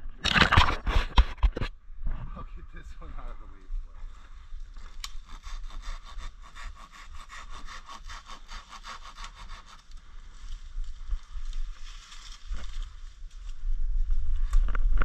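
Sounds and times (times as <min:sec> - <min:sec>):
hand saw cutting branch: 0:04.9 - 0:10.0.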